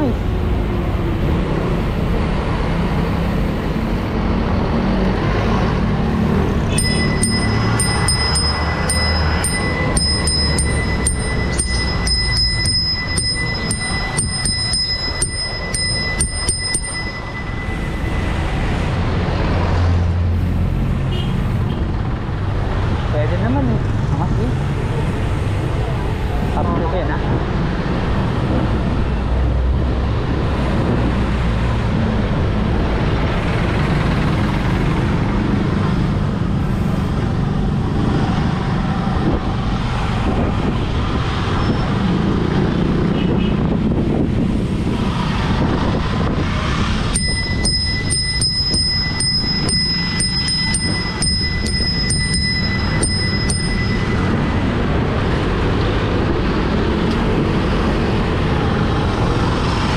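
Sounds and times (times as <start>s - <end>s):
road traffic noise: 0.0s - 59.9s
bicycle bell ringing: 6.6s - 19.6s, 46.4s - 55.6s.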